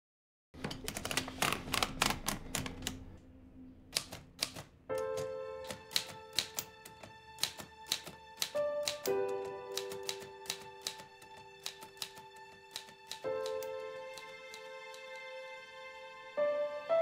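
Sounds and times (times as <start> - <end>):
typewriter keystrokes clacking: 0.6 - 3.1, 4.0 - 15.2
music with held notes: 4.9 - 17.0.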